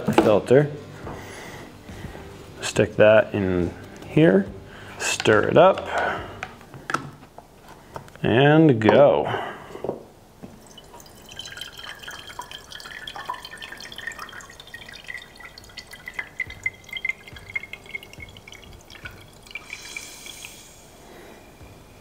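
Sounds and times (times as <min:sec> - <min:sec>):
coffee dripping: 0:10.4 - 0:21.1
air hissing through grounds: 0:19.6 - 0:21.8.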